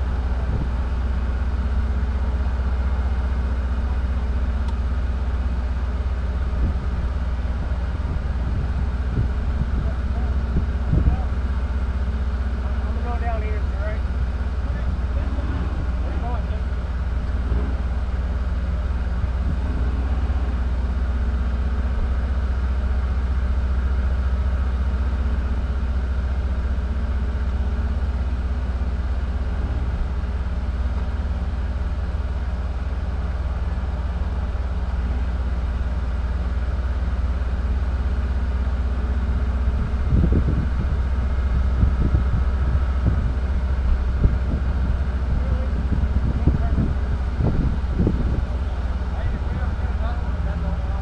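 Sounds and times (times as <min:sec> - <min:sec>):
vehicle engine idling: 0:00.0 - 0:51.0
low thumps: 0:14.1 - 0:22.2, 0:28.1 - 0:32.4.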